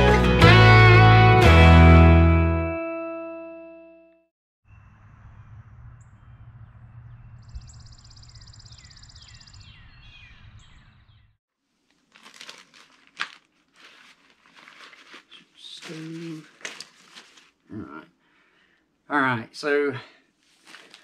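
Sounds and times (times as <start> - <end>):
songbirds singing: 4.7 - 11.4
gear and packaging rustling: 11.6 - 17.6, 20.4 - 21.0.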